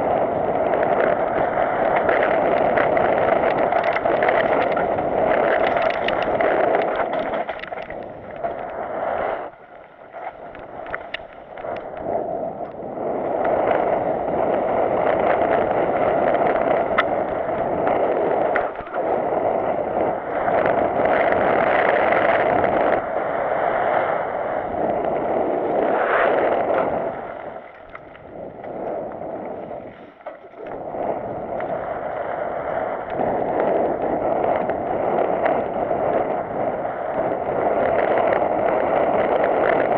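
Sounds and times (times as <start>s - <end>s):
wind rushing over microphone: 0.0s - 39.9s
bike rattles and knocks: 1.0s - 8.6s.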